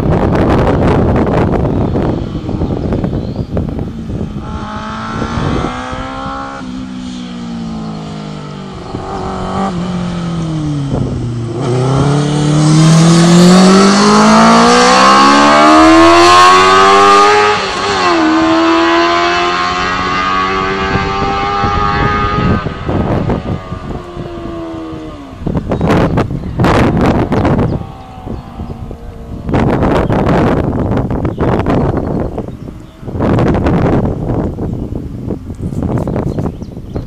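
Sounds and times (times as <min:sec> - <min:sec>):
racing engine revving past: 0:04.4 - 0:30.6.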